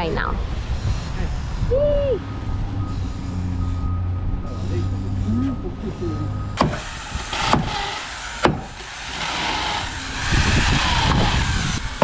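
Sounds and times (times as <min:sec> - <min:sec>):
electric drill driving screws: 0:06.7 - 0:12.0.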